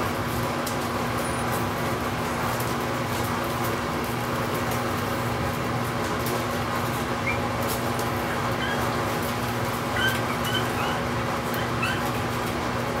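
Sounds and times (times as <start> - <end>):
steady background hum: 0.0 - 13.0
puppies squeaking: 7.2 - 7.5, 8.1 - 12.3.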